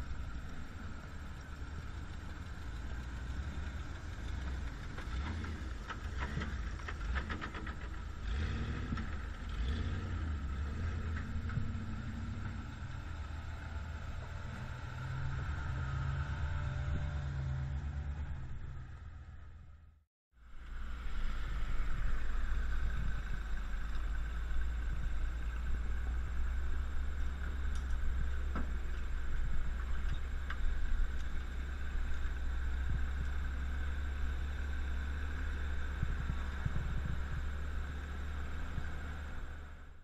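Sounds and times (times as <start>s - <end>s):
truck engine rumble: 0.0s - 40.0s
sharp clicks and rattles: 1.4s - 8.2s.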